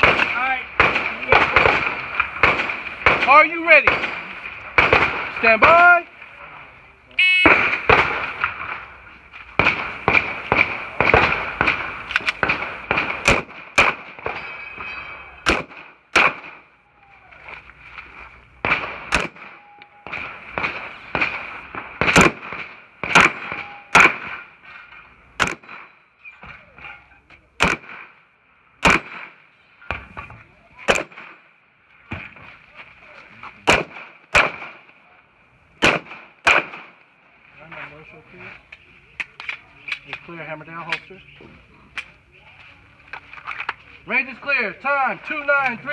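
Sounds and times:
pistol shots: 0.0s - 6.0s, 7.4s - 9.0s, 9.6s - 16.7s, 18.6s - 24.5s, 25.4s - 26.0s, 27.6s - 28.2s, 28.8s - 30.1s, 30.8s - 31.4s, 33.6s - 35.0s, 35.8s - 37.0s.

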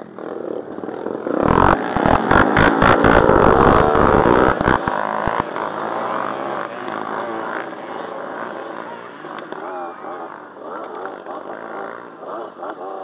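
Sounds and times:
dirt bike engines revving: 0.0s - 13.0s
low thumps: 1.4s - 5.5s.

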